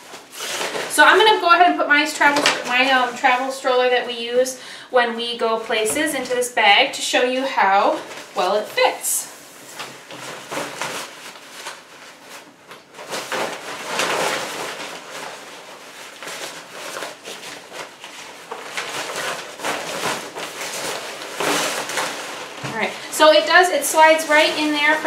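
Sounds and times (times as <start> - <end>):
bag rustling: 7.8 - 25.0.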